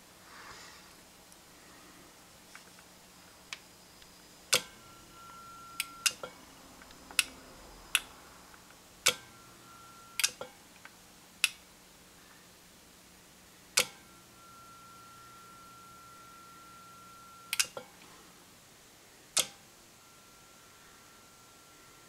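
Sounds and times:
faint ringing tone: 0:03.0 - 0:10.7, 0:13.5 - 0:22.0.

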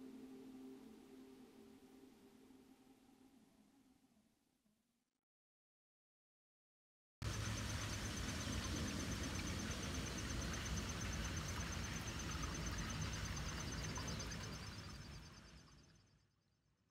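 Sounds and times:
steady hiss: 0:07.2 - 0:15.6.

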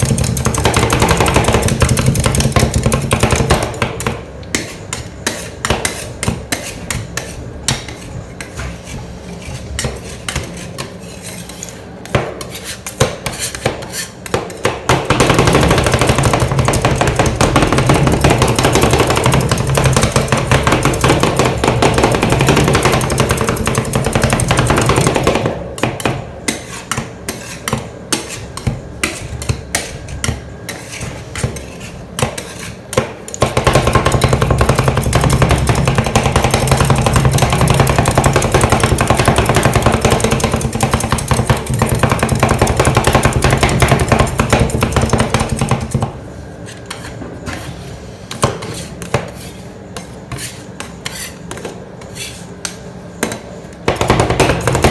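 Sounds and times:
metal spatulas scraping a cold plate: 0:04.6 - 0:14.7, 0:26.4 - 0:33.0, 0:48.6 - 0:52.7.

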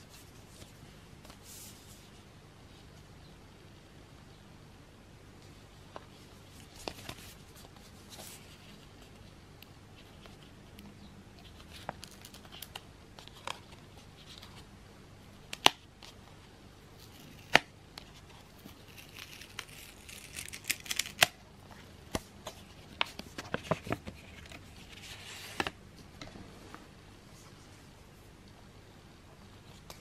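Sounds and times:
paper and card rustling: 0:17.0 - 0:25.8.

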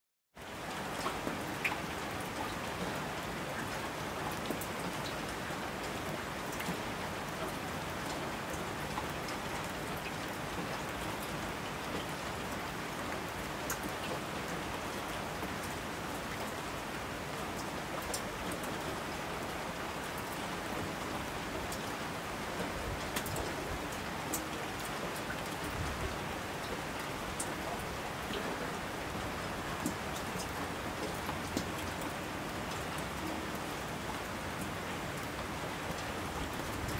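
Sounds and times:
raindrop ticks: 0:17.6 - 0:18.6, 0:23.0 - 0:25.5, 0:27.4 - 0:28.7, 0:29.7 - 0:32.1.

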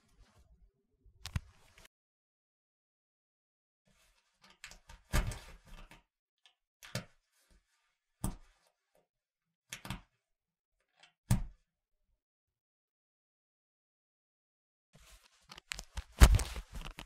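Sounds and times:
fabric rustling: 0:15.0 - 0:17.0.

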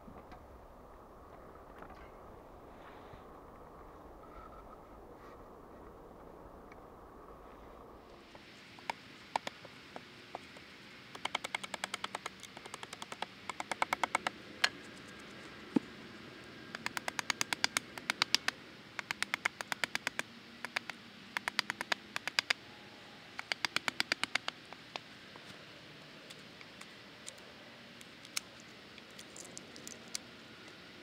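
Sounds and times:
hand tool rapid clicks: 0:11.1 - 0:14.3, 0:16.8 - 0:22.6, 0:23.4 - 0:25.0.

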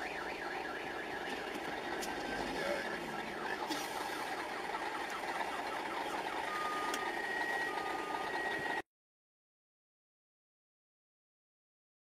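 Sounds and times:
car alarm: 0:00.0 - 0:08.9
traffic and engines: 0:00.0 - 0:08.9.

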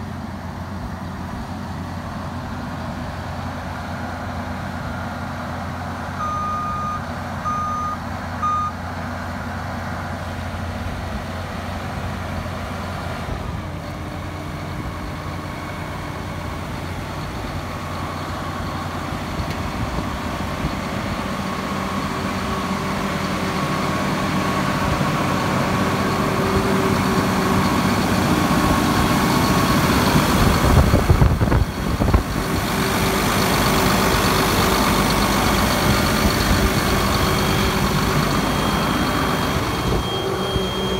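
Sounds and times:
diesel engine running: 0:00.0 - 0:40.9
electronic alarm beeps: 0:06.2 - 0:08.8, 0:36.9 - 0:40.9.

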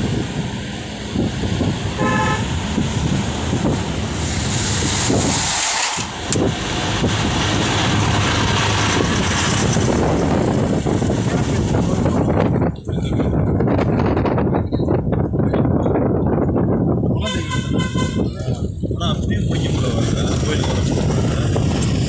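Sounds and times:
truck rushing past: 0:00.0 - 0:14.4
car road and wind noise: 0:00.0 - 0:22.0
vehicle horn toot: 0:02.0 - 0:02.6, 0:17.2 - 0:18.3.

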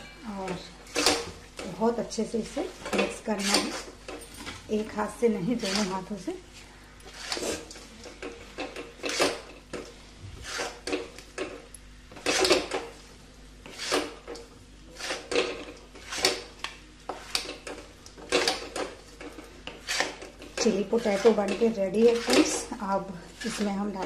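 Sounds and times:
utensils scraping metal pan: 0:02.5 - 0:04.0, 0:05.5 - 0:06.1, 0:07.1 - 0:09.5, 0:10.4 - 0:11.1, 0:13.6 - 0:16.5, 0:18.3 - 0:24.0.

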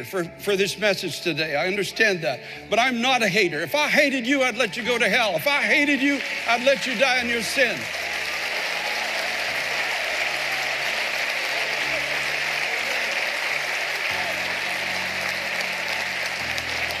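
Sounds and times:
congregation applauding: 0:03.8 - 0:17.0.

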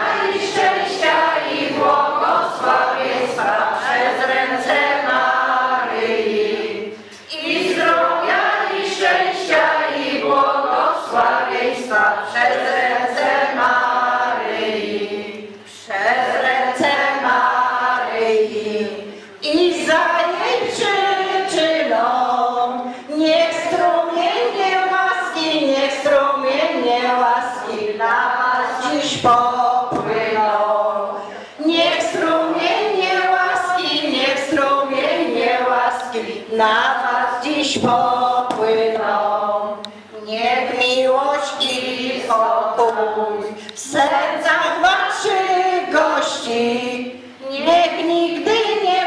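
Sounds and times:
women singing in unison: 0:00.0 - 0:49.0
woman singing into a microphone: 0:19.4 - 0:49.0.

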